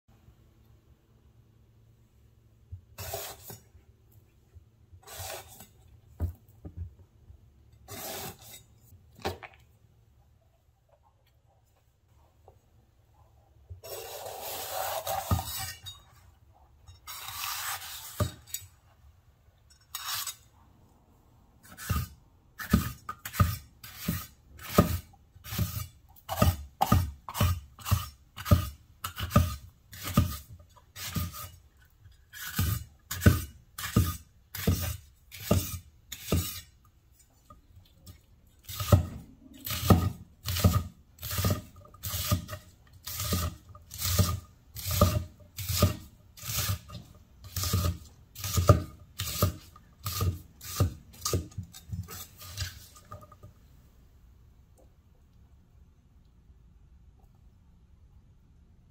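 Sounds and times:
knife chopping pepper on wooden board: 38.7s - 52.2s.

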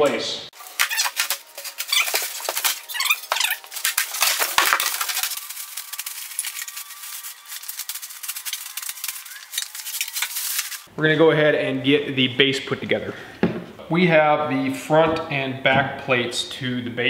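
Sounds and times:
plastic wrap crinkling: 0.6s - 10.9s.

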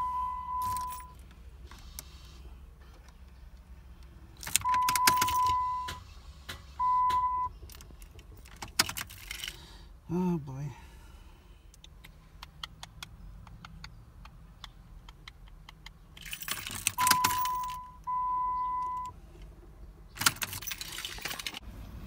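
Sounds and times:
steady beep: 0.0s - 1.1s, 6.8s - 7.5s, 17.0s - 19.1s
car engine cranking: 0.0s - 2.2s, 2.8s - 9.6s, 15.1s - 21.6s
key ring jangling: 0.6s - 1.2s, 4.4s - 5.6s, 16.2s - 17.8s.

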